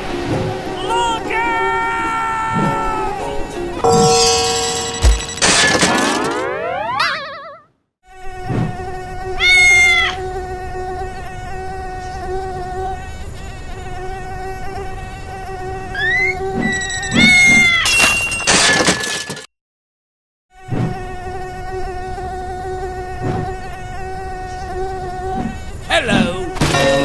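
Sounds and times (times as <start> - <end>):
high pitched cry: 9.4 - 10.2, 16.0 - 18.0.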